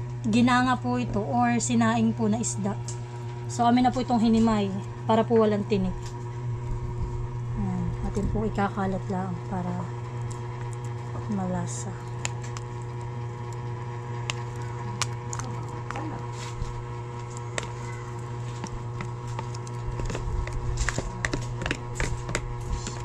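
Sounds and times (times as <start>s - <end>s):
low hum: 0.0s - 23.0s
plastic scoop scraping tub: 15.8s - 23.0s.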